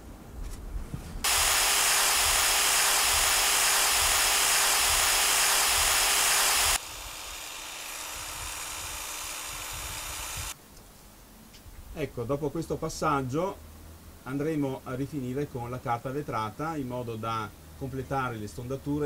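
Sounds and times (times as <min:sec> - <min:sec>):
electric drill motor whine: 0:01.2 - 0:10.6
wood sanding hiss: 0:01.2 - 0:10.6.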